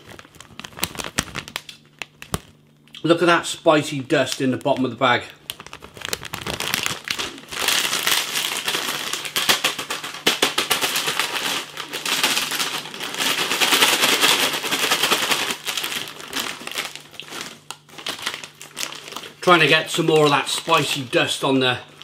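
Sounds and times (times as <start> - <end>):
plastic snack bag crinkling: 0.0 - 2.6, 3.7 - 22.0
snack pieces rattling in bag: 5.4 - 21.2.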